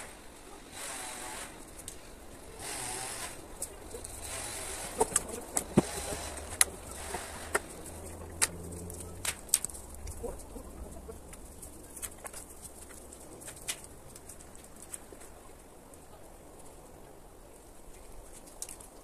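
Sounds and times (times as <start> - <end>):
wooden branches knocking: 4.8 - 6.8.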